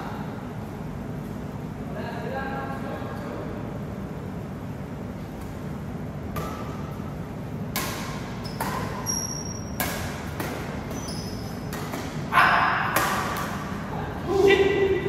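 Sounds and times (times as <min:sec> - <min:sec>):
racket striking shuttlecock: 0:05.4 - 0:13.8
shoes squeaking on court: 0:08.2 - 0:12.2.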